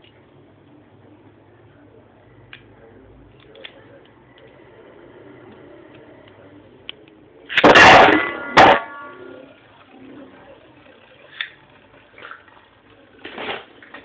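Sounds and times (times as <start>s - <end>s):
spinning tops whirring: 7.4s - 13.9s
sharp clicks of tops colliding: 7.5s - 9.1s
loud blaring noise: 7.5s - 12.8s.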